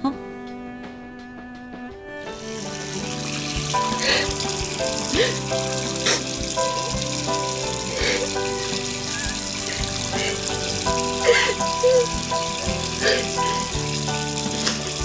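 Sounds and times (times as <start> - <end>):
soft background music: 0.0 - 15.0
tap water running and splashing: 2.2 - 15.0
woman sobbing: 5.1 - 6.3, 7.8 - 13.7.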